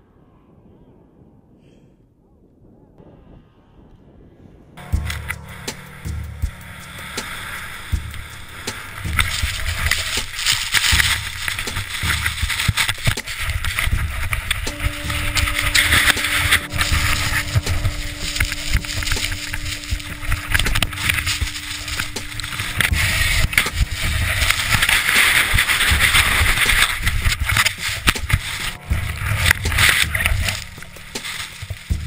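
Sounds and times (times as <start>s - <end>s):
wind buffeting microphone: 0.0s - 32.0s
steady low hum: 3.0s - 32.0s
snow rushing and scraping: 4.8s - 32.0s
sharp crunches and knocks: 7.9s - 32.0s.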